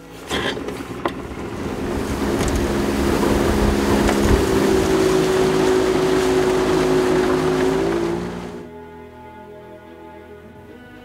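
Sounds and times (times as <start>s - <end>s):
outboard motor droning: 0.0s - 8.7s
wind and water rushing: 0.7s - 8.7s.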